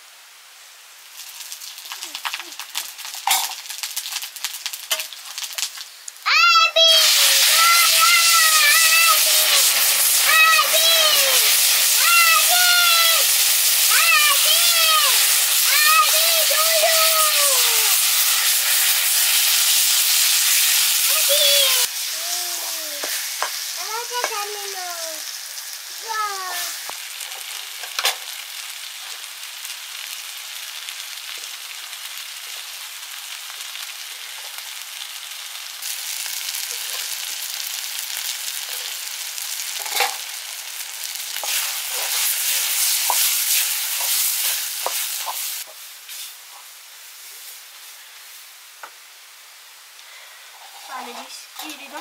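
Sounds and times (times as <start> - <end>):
food sizzling in a pan: 0.0 - 52.0.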